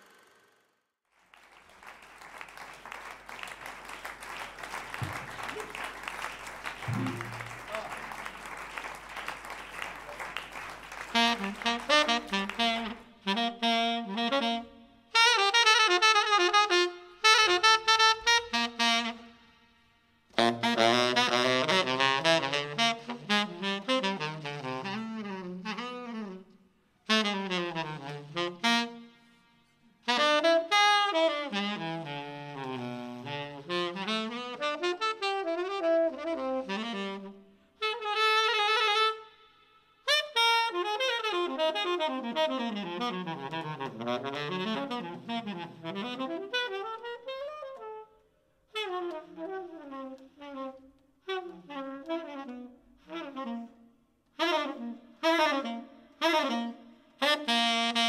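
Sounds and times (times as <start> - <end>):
applause: 1.1 - 13.0
tenor saxophone jazz: 3.4 - 58.0.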